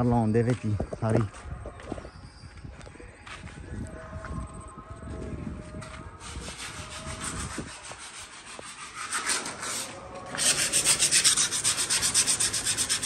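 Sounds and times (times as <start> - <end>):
sandpaper scraping metal: 6.2 - 13.0.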